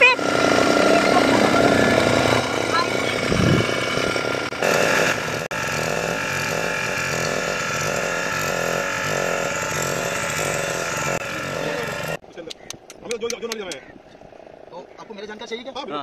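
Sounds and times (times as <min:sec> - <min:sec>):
motorboat engine running: 0:00.0 - 0:12.2.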